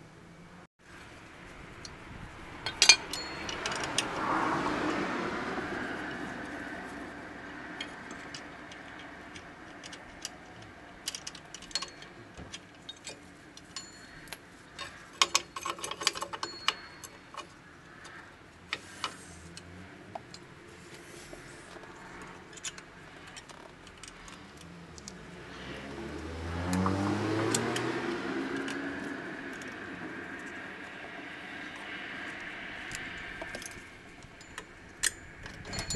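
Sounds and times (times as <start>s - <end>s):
small metal clicks and clinks: 2.6s - 4.2s, 7.4s - 18.2s, 21.8s - 25.2s, 31.7s - 35.9s.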